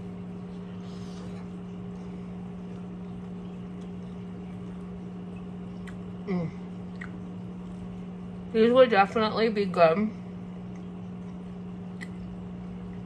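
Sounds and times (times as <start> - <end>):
soft eating sounds: 0.0 - 8.5, 10.1 - 13.0
low electrical appliance hum: 0.0 - 13.0
person humming mm: 6.2 - 6.7.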